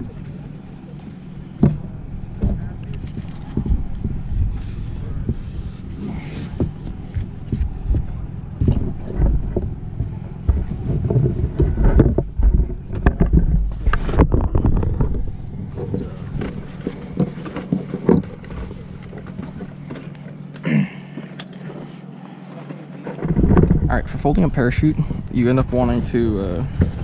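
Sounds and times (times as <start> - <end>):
wind on microphone: 0.0 - 17.2, 23.2 - 27.0.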